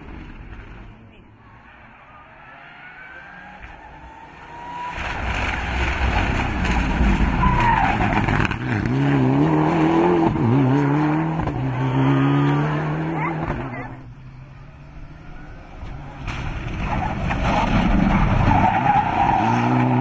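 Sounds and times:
rally car engine passing: 0.1s - 20.0s
tyre squeal: 7.3s - 8.3s.

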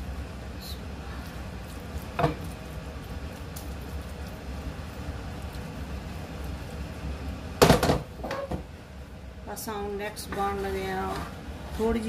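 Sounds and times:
steady low hum: 0.0s - 12.0s
kitchenware knock: 7.6s - 8.6s.

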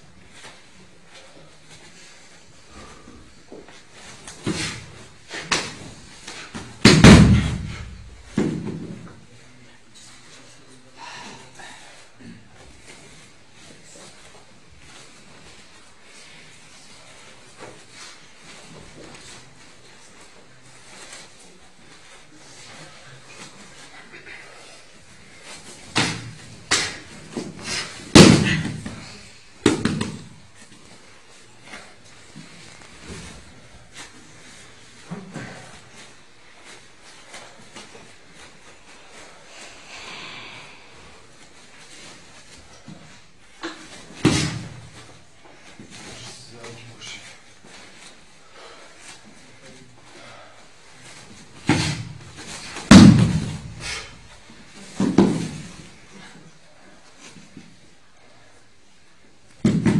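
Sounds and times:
bodies and feet thumping on mat: 2.9s - 9.2s, 25.5s - 38.6s, 41.3s - 46.3s, 51.1s - 56.1s, 59.5s - 59.9s
heavy thud on padded mat: 6.6s - 9.0s, 27.7s - 29.0s, 51.7s - 54.1s, 59.6s - 59.9s.

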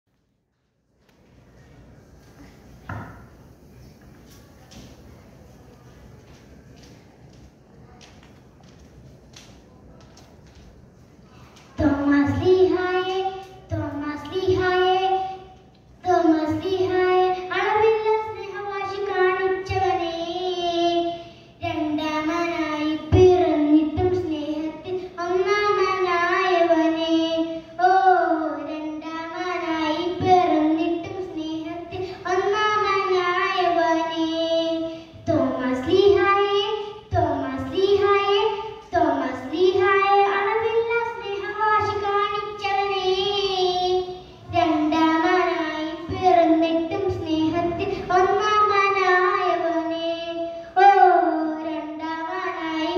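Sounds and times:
girl singing into a microphone: 11.3s - 52.9s.

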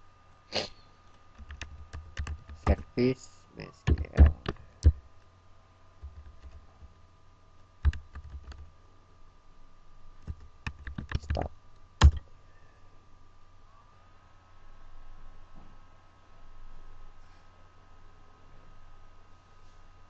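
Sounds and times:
computer keyboard typing: 1.4s - 2.9s, 3.8s - 5.0s, 6.0s - 7.0s, 7.8s - 8.7s, 10.2s - 12.2s.

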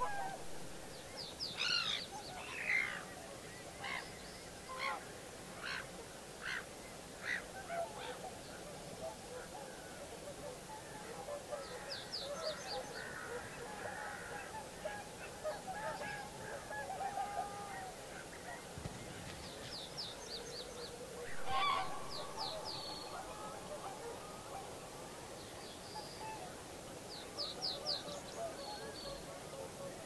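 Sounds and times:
cranes calling: 0.0s - 0.7s, 21.2s - 25.2s.

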